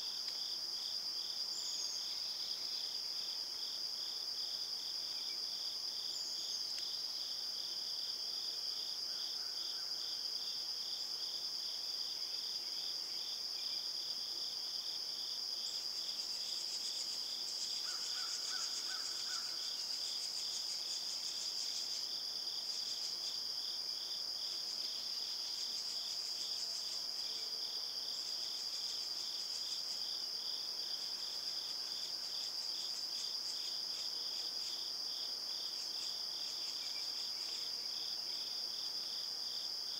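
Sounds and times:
pulsing insect chirp: 0.0 - 39.9
high-pitched insect trill: 8.8 - 39.9.

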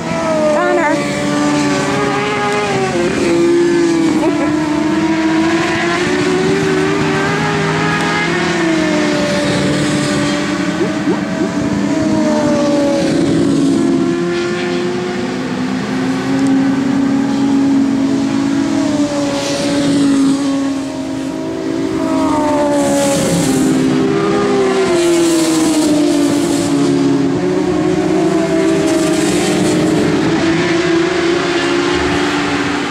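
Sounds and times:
racing motorcycles revving: 0.0 - 32.9.

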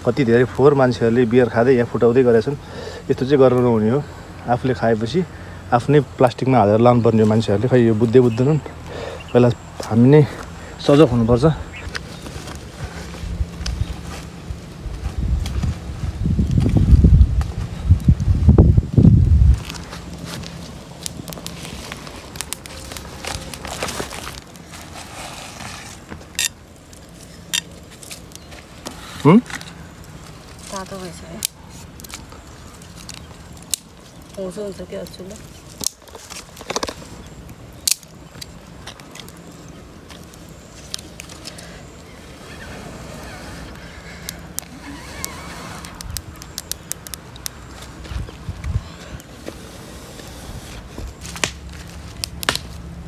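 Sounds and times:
campfire crackling: 0.0 - 53.0
twigs snapping and rustling: 11.7 - 14.4, 15.0 - 42.2, 43.6 - 49.6, 51.0 - 53.0.

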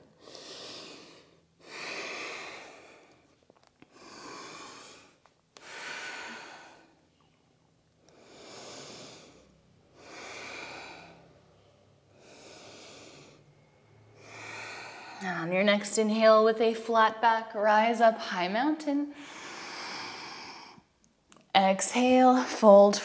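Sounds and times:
woman breathing deeply: 0.0 - 7.3, 8.0 - 15.3, 19.1 - 20.9.

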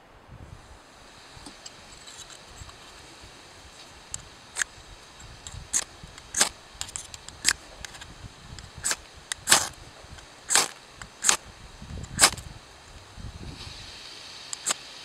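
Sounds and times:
fire-starter rod scraping: 1.2 - 12.5.

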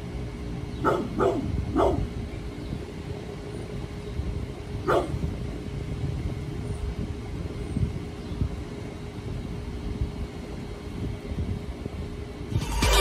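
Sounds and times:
dog barking: 0.8 - 2.0, 4.9 - 5.2
low rumble: 12.5 - 13.0.

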